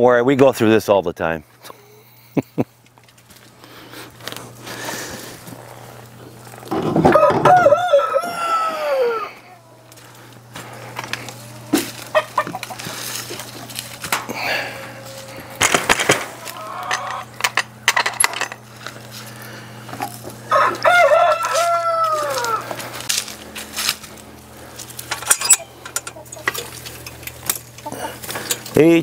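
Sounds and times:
hens clucking: 3.6 - 17.9, 18.6 - 28.8
rooster crowing: 7.0 - 9.9, 14.4 - 15.6, 20.4 - 22.8.

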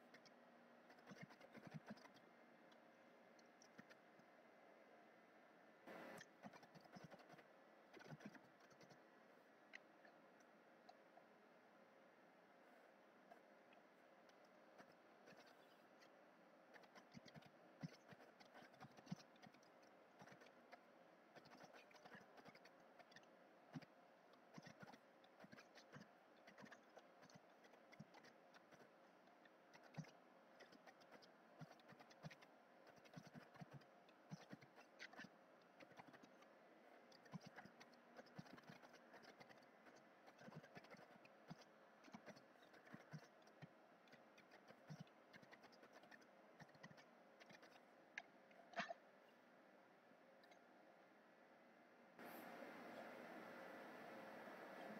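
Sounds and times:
faint keyboard typing: 0.0 - 4.4, 5.9 - 9.1, 13.2 - 49.0.

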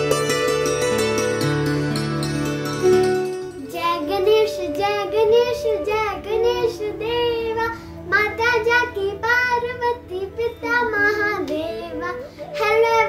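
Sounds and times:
child singing: 3.6 - 13.0.

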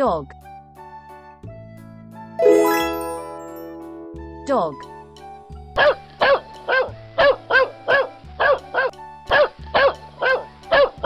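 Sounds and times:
soft background music: 0.0 - 11.0
dog barking: 5.8 - 11.0.

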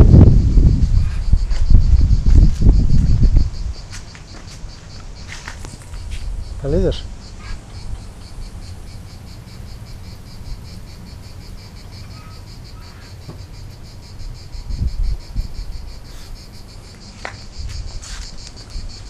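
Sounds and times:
low rumbling thumps: 0.0 - 3.9
insects chirping: 0.0 - 19.0.

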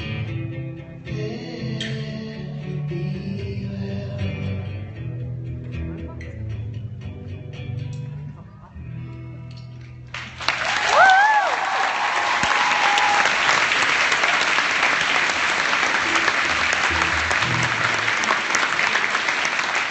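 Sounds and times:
audience applauding: 10.1 - 19.9
person cheering: 10.6 - 13.8.

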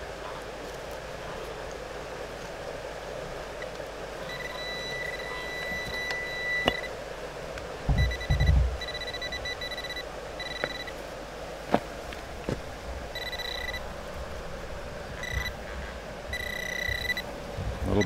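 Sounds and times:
pinpointer electronic beeping: 4.2 - 6.9, 7.9 - 11.0, 13.2 - 13.8, 15.2 - 15.6, 16.3 - 17.2.

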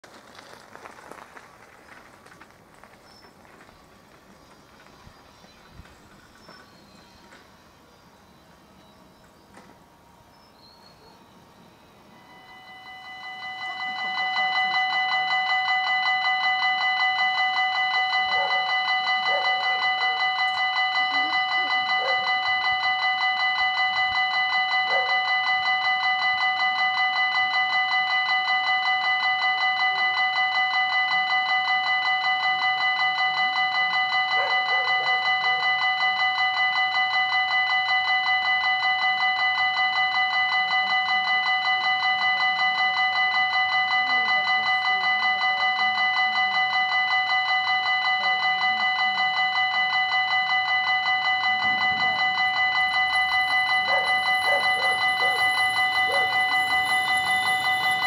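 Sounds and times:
electronic crossing bell ringing: 5.0 - 58.0.

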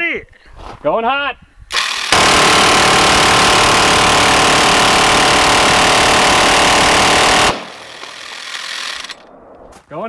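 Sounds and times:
minigun firing: 1.7 - 9.3.

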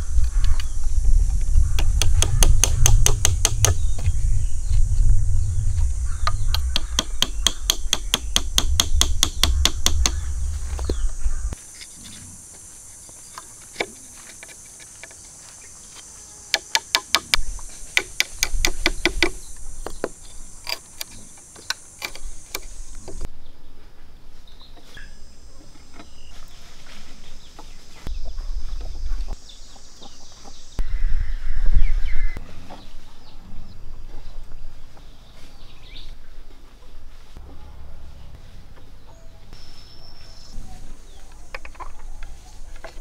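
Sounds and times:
quick tapping on bamboo: 1.8 - 3.8, 16.5 - 20.2
bamboo clicks and knocks: 6.3 - 11.1, 13.1 - 15.4, 16.5 - 23.3, 41.2 - 43.0.

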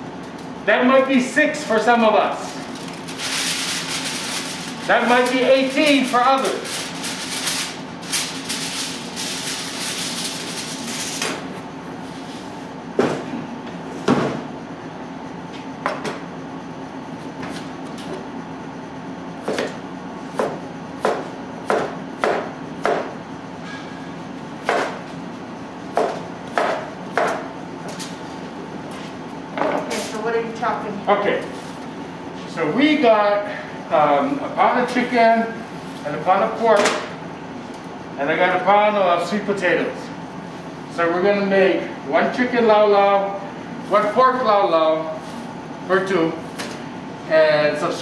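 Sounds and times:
steady low hum: 0.0 - 48.0
aluminium foil crinkling: 2.5 - 11.2
knife chopping on cutting board: 20.4 - 23.1, 24.6 - 25.0, 25.9 - 27.4.

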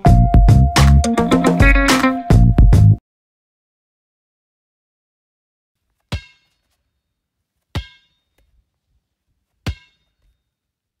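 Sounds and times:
sharp metallic clangs: 6.1 - 6.8, 7.7 - 8.4, 9.6 - 10.4.

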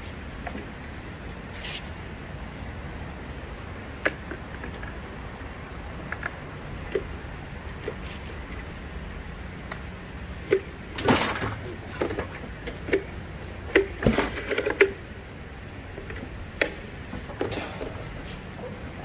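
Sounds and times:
tools and metal parts clinking: 11.0 - 13.0.

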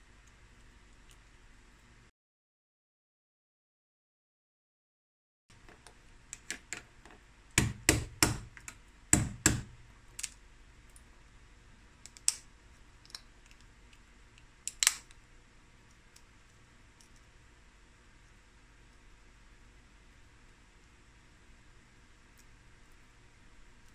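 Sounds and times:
metal pounder knocking crab shell: 7.6 - 8.5, 9.2 - 9.7
shell cracking: 12.0 - 15.2.

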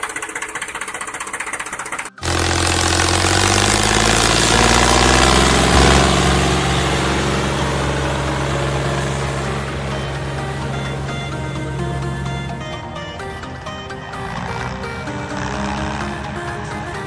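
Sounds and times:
motor humming with whine: 2.2 - 17.0.

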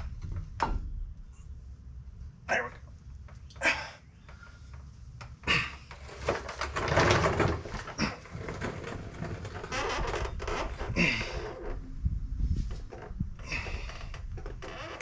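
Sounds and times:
mechanic's creeper rolling: 4.2 - 15.0.

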